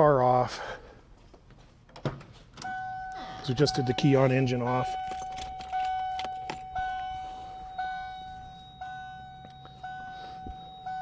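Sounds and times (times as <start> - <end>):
car warning chime dinging: 2.6 - 11.0.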